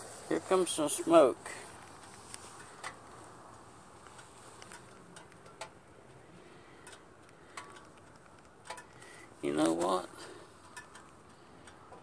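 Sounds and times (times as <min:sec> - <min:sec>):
faint clicks: 0:06.8 - 0:09.2, 0:10.6 - 0:12.0.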